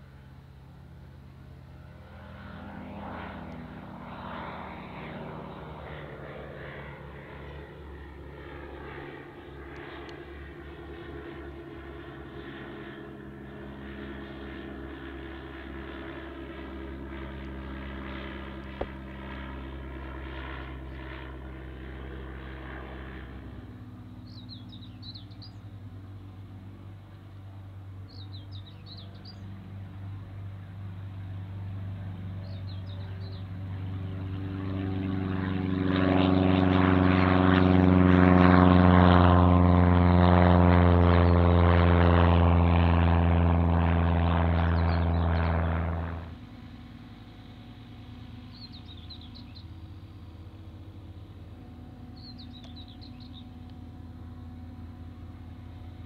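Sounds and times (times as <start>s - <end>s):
propeller engine droning overhead: 0.0s - 56.0s
propeller plane at full power: 0.0s - 56.0s
short bird chirps: 52.2s - 53.4s.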